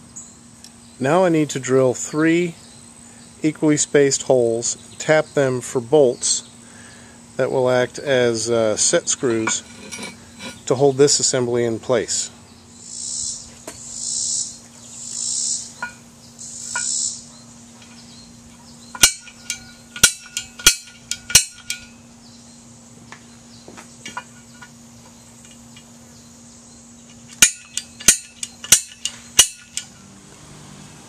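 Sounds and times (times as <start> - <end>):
insects buzzing: 0.0 - 31.0
steel pipe ringing: 8.8 - 10.8, 15.7 - 17.2, 18.9 - 22.0, 27.4 - 30.1
sharp metal clicks and taps: 18.9 - 21.9, 27.2 - 29.9.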